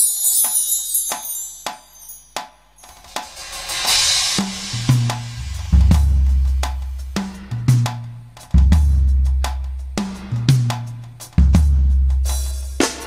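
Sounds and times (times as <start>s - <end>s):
cymbal swell: 0.5s - 7.2s
drum pad strikes: 1.1s - 13.0s
deep bass drum hits: 2.9s - 7.8s.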